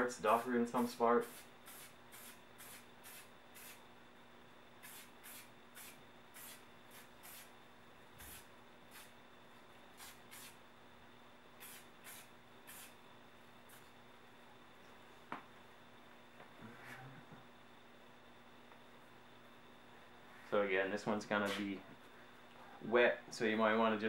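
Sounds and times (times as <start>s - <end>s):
spray paint can hissing: 1.2s - 3.8s, 4.8s - 7.5s, 8.2s - 9.1s, 10.0s - 10.6s, 11.6s - 13.0s.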